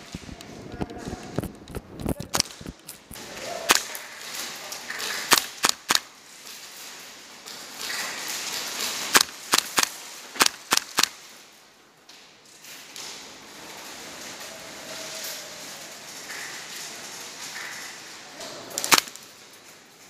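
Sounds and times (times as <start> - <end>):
airsoft gun shots: 5.3 - 6.1, 9.1 - 11.1, 18.8 - 19.2.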